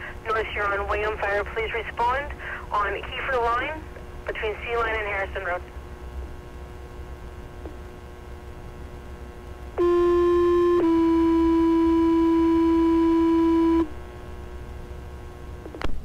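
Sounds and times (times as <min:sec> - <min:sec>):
radio hum and hiss: 0:00.0 - 0:10.9, 0:11.8 - 0:16.0
two-tone paging tone: 0:09.8 - 0:13.9.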